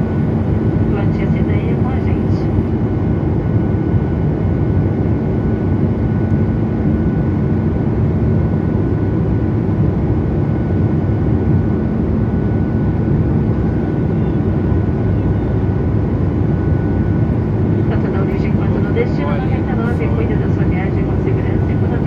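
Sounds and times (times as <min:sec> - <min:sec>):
airliner cabin drone: 0:00.0 - 0:22.0
faint steady whine: 0:12.8 - 0:22.0.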